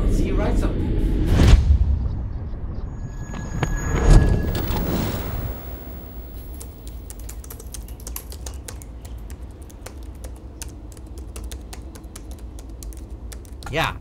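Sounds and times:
low steady hum: 0:04.4 - 0:13.7
laptop keyboard typing: 0:04.5 - 0:13.8.

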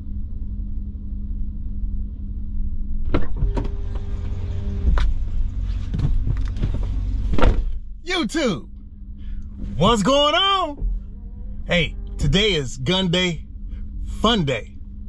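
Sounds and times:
steady low rumble: 0:00.0 - 0:15.0
car door clicks and knocks: 0:05.9 - 0:07.8
brief steady tone: 0:09.8 - 0:13.4.

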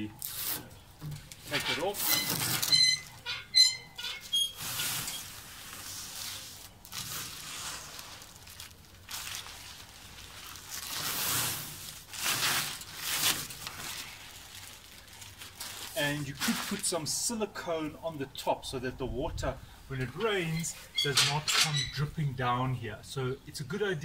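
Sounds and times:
plastic film peeling: 0:00.0 - 0:17.0
rustling plastic film: 0:00.0 - 0:17.4.

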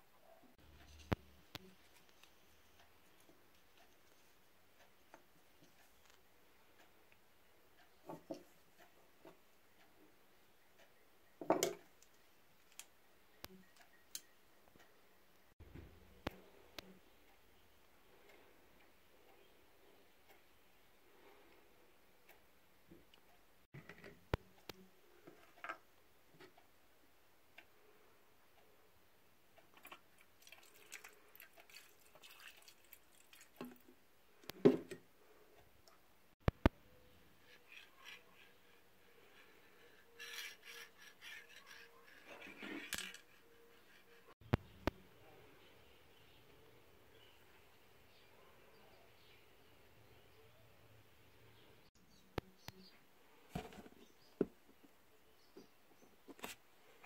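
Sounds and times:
toy car parts clicking: 0:39.9 - 0:43.4.

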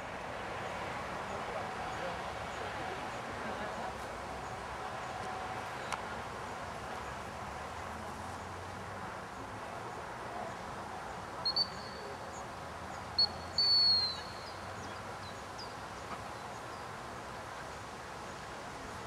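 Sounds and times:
outdoor ambience: 0:00.0 - 0:19.0
dog whistle peeps: 0:13.2 - 0:14.3
faint bird chirps: 0:13.2 - 0:14.6.

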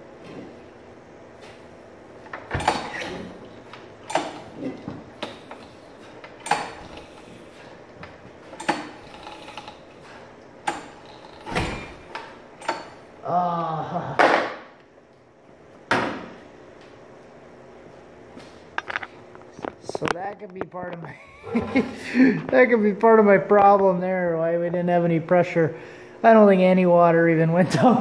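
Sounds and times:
lawnmower engine cranking: 0:02.3 - 0:07.5, 0:08.4 - 0:13.0
recoil starter rope pulls: 0:08.4 - 0:11.6.

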